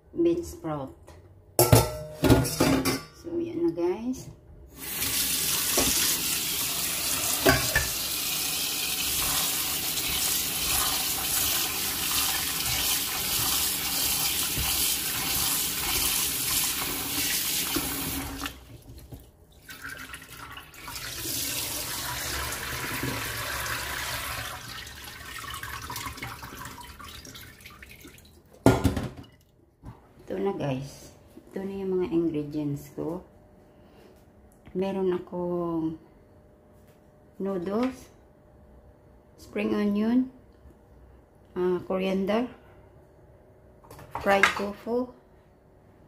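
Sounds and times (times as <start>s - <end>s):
tap water running into steel sink: 4.8s - 19.0s, 19.6s - 28.3s
knock in sink: 28.6s - 29.3s.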